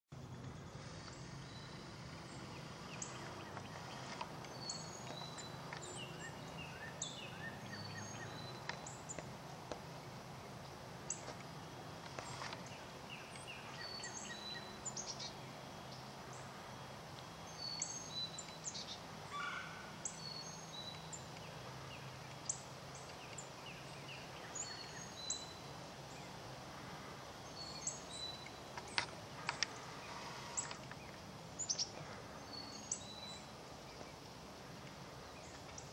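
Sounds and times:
steady low hum: 0:00.1 - 0:35.9
small birds chirping: 0:00.2 - 0:35.9.

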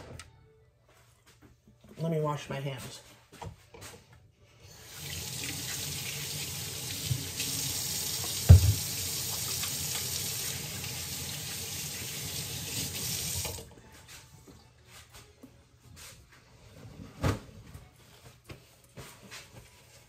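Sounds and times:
tap water running: 0:04.7 - 0:13.7.

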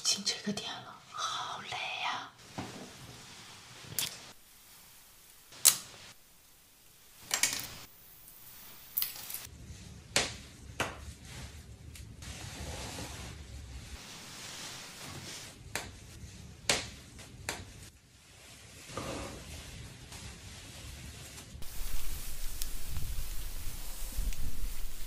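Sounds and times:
hair rustling: 0:21.2 - 0:25.0.

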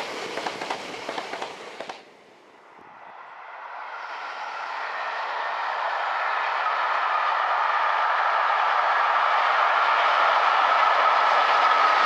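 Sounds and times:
diesel locomotive passing: 0:00.0 - 0:12.0.

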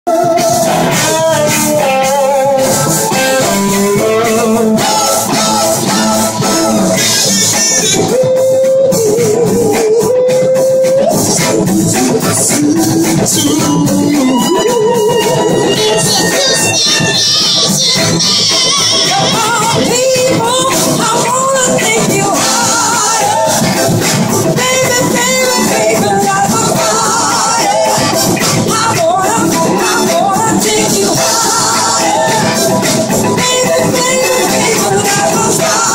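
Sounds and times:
drums: 0:00.0 - 0:35.9
rock band playing funky groove: 0:00.0 - 0:35.9
slide guitar solo: 0:00.1 - 0:11.0, 0:13.1 - 0:35.9
bass guitar: 0:00.1 - 0:35.9
person singing: 0:00.1 - 0:35.9.

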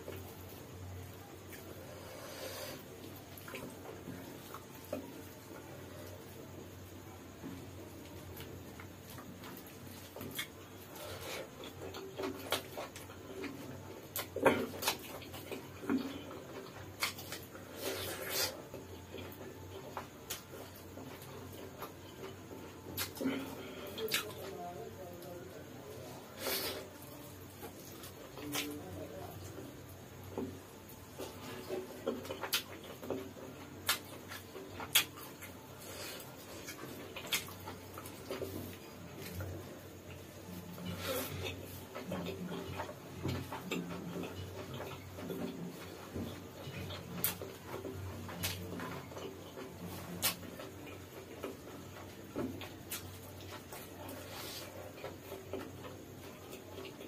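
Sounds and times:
man chewing and smacking lips: 0:00.0 - 0:06.4, 0:07.4 - 0:24.5, 0:29.4 - 0:57.0
wet chewing and lip smacks: 0:33.8 - 0:35.6, 0:36.4 - 0:39.4.

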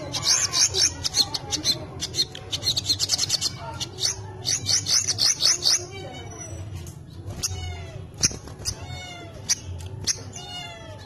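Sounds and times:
songbird chirping: 0:00.0 - 0:11.0
cat meowing: 0:08.7 - 0:09.6, 0:10.3 - 0:11.0.

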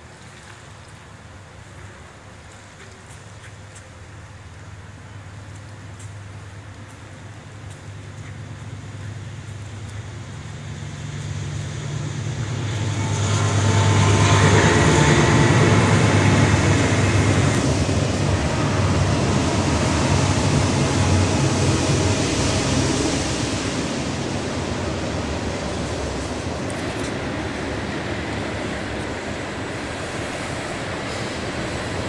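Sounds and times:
engine low hum: 0:04.1 - 0:32.0
rushing noise: 0:10.5 - 0:32.0.

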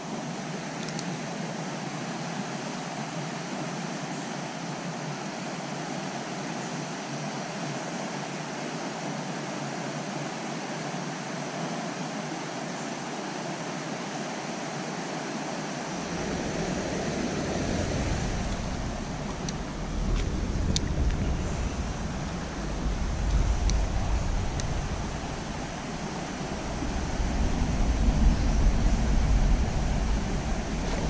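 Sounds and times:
creek water flowing: 0:11.4 - 0:31.0
low rumble on microphone: 0:15.9 - 0:31.0.

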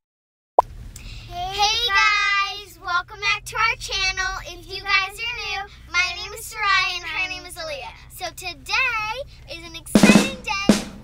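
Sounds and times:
child singing high notes: 0:09.5 - 0:10.8.

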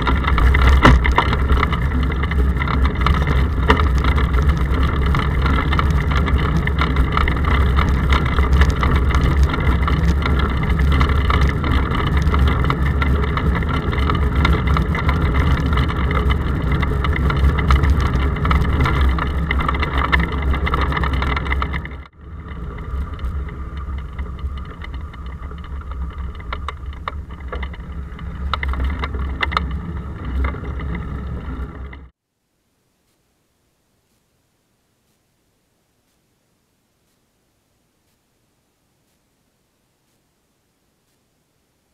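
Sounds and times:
road vibration rumble: 0:00.0 - 0:32.2
wind: 0:00.0 - 0:41.9.

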